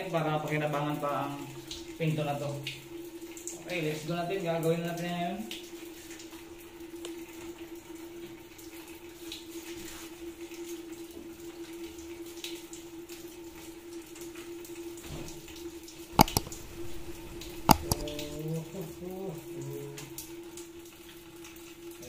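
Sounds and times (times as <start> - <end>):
sharp clicks: 16.2 - 18.4.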